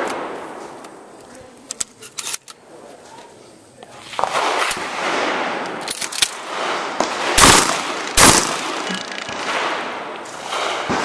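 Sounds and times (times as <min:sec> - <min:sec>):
shotgun shots: 0:04.1 - 0:11.0
sharp clicks and knocks: 0:08.3 - 0:09.6.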